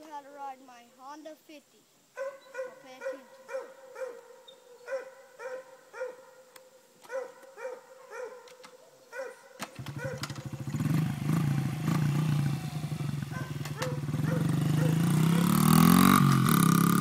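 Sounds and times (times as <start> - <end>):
dog barking: 2.2 - 10.3, 13.3 - 15.6
small motorcycle engine revving: 9.6 - 17.0.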